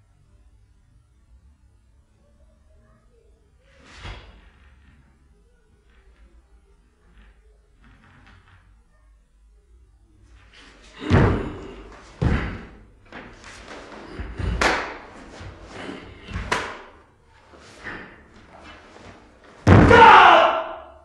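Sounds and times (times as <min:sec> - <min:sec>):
feet shuffling: 0:10.5 - 0:20.1
bare feet thudding on wood: 0:11.0 - 0:17.0, 0:17.7 - 0:20.4.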